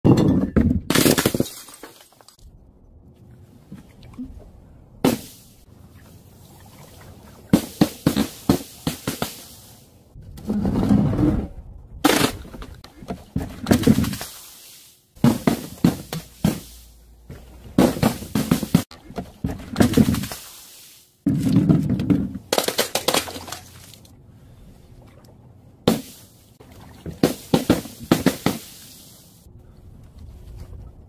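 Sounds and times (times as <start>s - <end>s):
glass bottles smashing: 0.1s - 2.4s.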